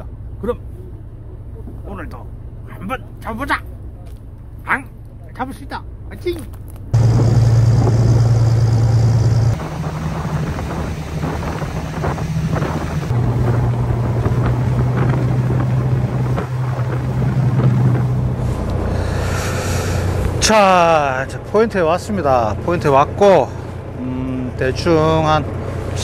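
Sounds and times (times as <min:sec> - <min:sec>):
wind on microphone: 0:07.0 - 0:20.4
boat engine droning: 0:07.0 - 0:26.0.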